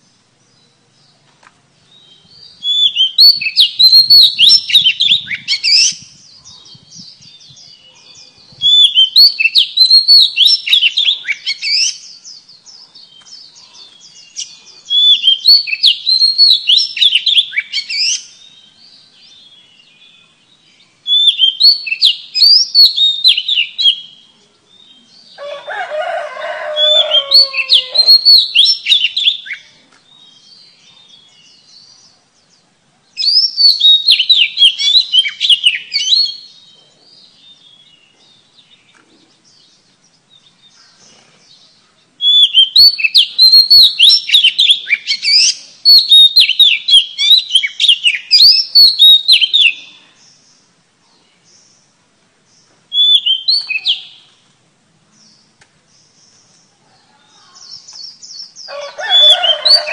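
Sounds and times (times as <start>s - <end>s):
lower bird call: 0.0s - 32.0s, 52.9s - 54.4s
bird singing whistled notes: 1.9s - 25.3s, 26.8s - 32.1s, 33.2s - 41.0s, 41.6s - 50.7s, 52.9s - 54.4s.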